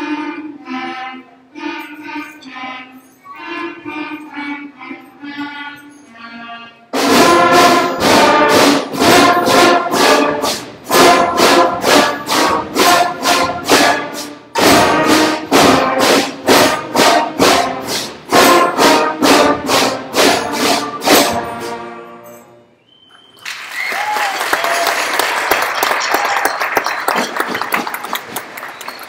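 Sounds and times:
school band playing punched notes: 0:00.0 - 0:22.9.

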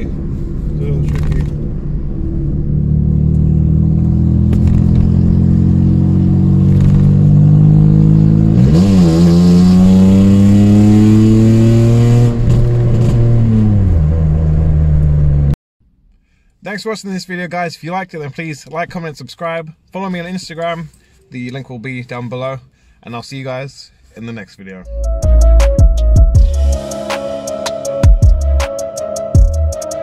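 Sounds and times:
loud car engine accelerating: 0:00.0 - 0:15.6.

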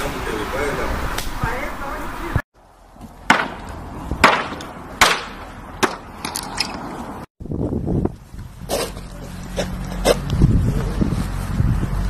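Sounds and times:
wooden boards knocking: 0:03.3 - 0:06.1.

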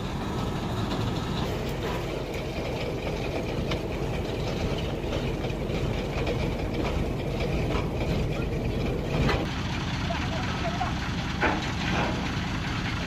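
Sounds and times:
diesel truck engine rumbling: 0:00.0 - 0:13.0.

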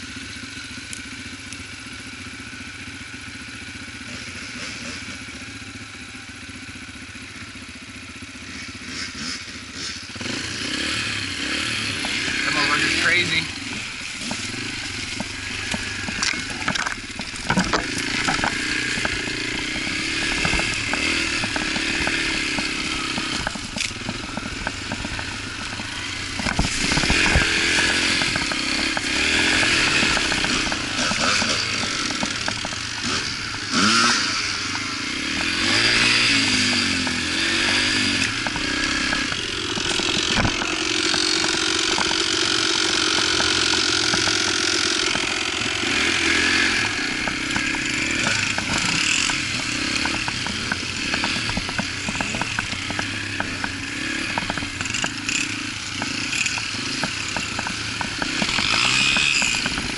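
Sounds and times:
dirt bike engine revving: 0:00.0 - 0:59.9
knocks and rattles: 0:12.0 - 0:33.9, 0:34.7 - 0:59.9.

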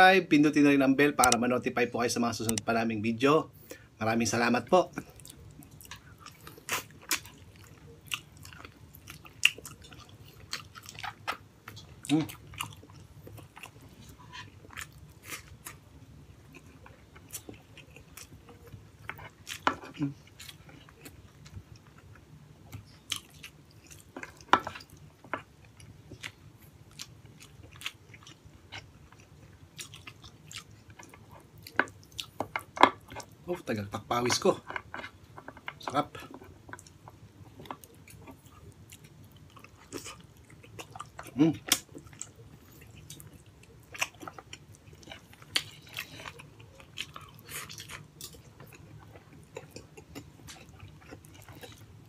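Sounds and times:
wet chewing and mouth smacks: 0:16.5 - 0:33.4, 0:34.7 - 0:52.0.

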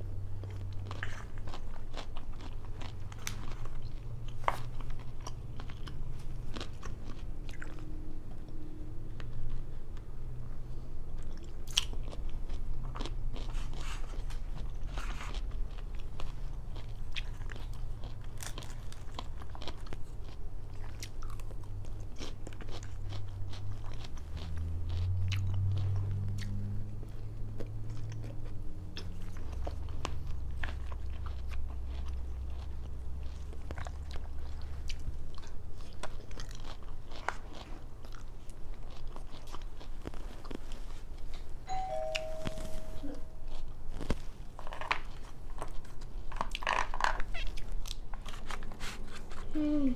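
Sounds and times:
chewing and crunching: 0:00.0 - 0:41.6, 0:43.4 - 0:49.9
low hum: 0:41.6 - 0:44.7.

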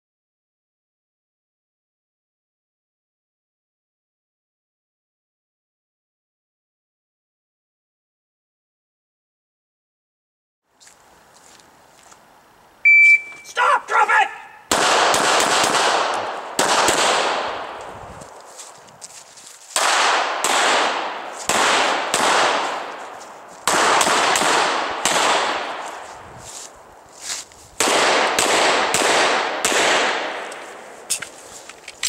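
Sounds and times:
pistol shots with long echo: 0:14.7 - 0:17.8, 0:19.8 - 0:23.0, 0:23.6 - 0:25.8, 0:27.8 - 0:30.5.

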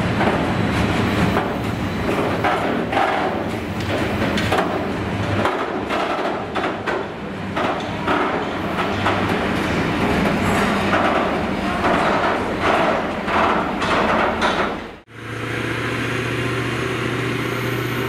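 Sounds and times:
wagons knocking and clanking: 0:00.0 - 0:15.0
train wheels rumbling on rails: 0:00.0 - 0:18.0.

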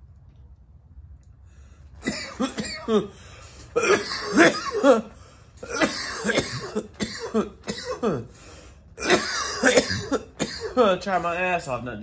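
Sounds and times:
man coughing hard: 0:02.0 - 0:08.4, 0:09.0 - 0:11.0.

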